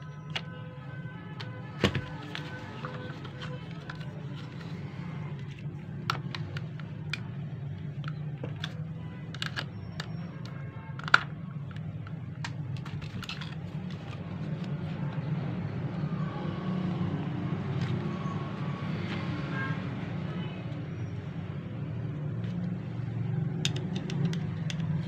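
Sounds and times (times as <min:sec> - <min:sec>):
plastic parts clicking: 0:00.1 - 0:00.5, 0:01.4 - 0:15.2, 0:23.5 - 0:25.0.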